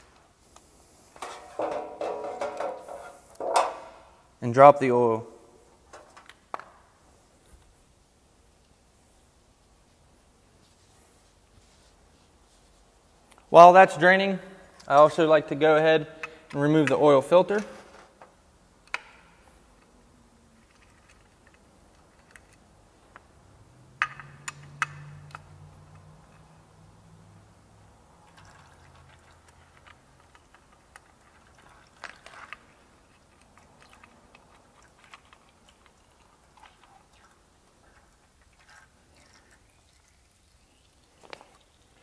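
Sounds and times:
oil trickling into pan: 38.0s - 42.0s.

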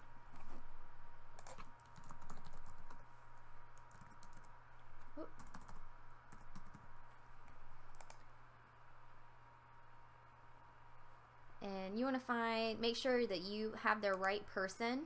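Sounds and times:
faint steady hum: 0.0s - 15.0s
typing on keyboard: 1.4s - 3.0s, 3.8s - 4.5s, 5.1s - 6.9s, 7.9s - 8.3s.

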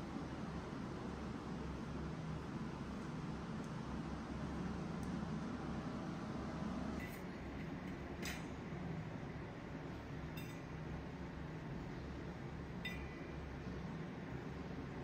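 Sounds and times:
low steady hum: 0.0s - 15.0s
light metallic clinks: 10.3s - 10.9s, 12.8s - 13.4s.

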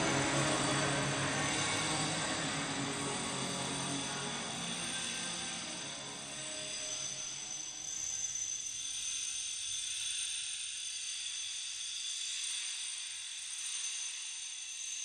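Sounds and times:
steady high-pitched hiss: 0.0s - 8.4s.

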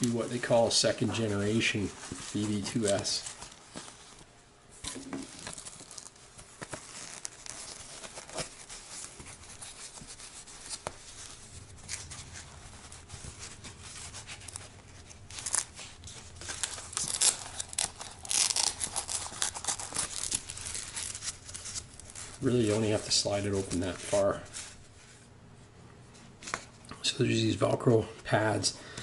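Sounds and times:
cloth rustling and scraping on foam: 0.0s - 4.3s, 4.9s - 26.8s
velcro tearing loose: 13.4s - 22.4s.

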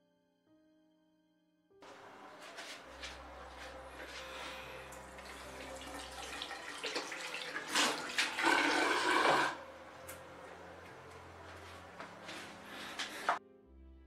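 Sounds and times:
tap water splashing into sink: 4.9s - 9.6s.

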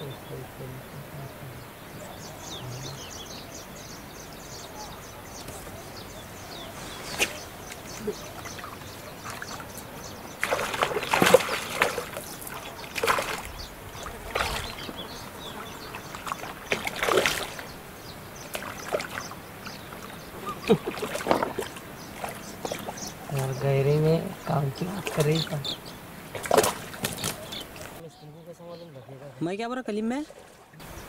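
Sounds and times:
fish splashing in water: 7.0s - 23.6s, 24.8s - 28.0s.

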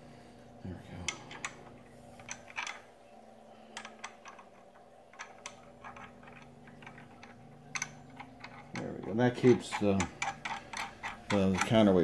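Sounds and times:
faint metal clicks and taps: 1.0s - 2.9s, 3.7s - 12.0s.

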